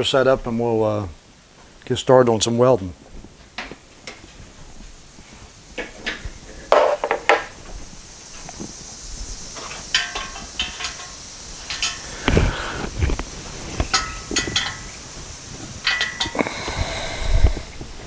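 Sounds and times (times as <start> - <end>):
knocks of equipment handled: 5.8 - 7.5
metallic clinks: 9.6 - 12.3, 13.9 - 15.0, 15.8 - 16.4.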